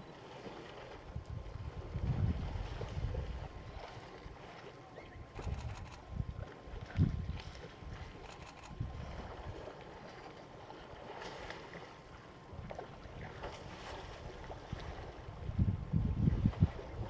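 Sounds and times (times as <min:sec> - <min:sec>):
wind buffeting microphone: 0:01.1 - 0:04.0, 0:05.3 - 0:09.6, 0:12.6 - 0:17.0
bush ambience: 0:05.0 - 0:06.1, 0:08.1 - 0:08.9.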